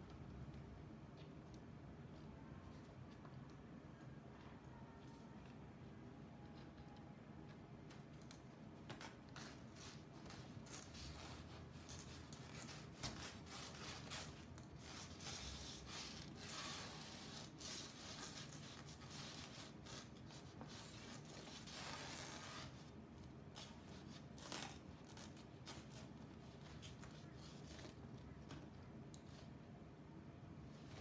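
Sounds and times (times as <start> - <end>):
puppet rubbing on paper screen: 9.4 - 22.9.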